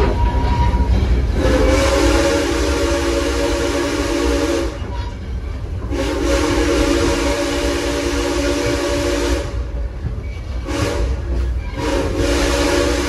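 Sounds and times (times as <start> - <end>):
steam whistle blast: 0.0 - 4.8, 5.9 - 9.6, 11.8 - 13.0
train rumbling along: 0.0 - 13.0.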